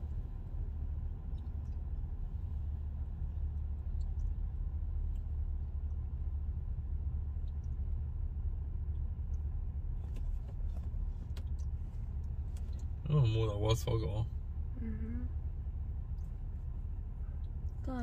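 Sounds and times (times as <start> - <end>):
car interior engine and road noise: 0.0 - 18.0.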